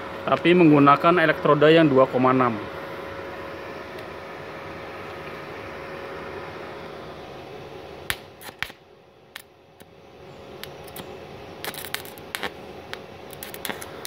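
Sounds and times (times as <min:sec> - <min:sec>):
welder machine humming: 0:00.0 - 0:14.0
welding electrode crackling clicks: 0:08.1 - 0:09.9, 0:10.6 - 0:14.0.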